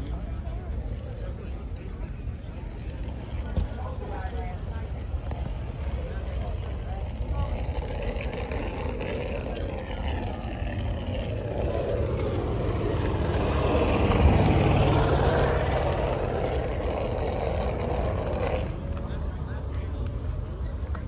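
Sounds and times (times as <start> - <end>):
vehicle passing by: 7.3 - 20.5.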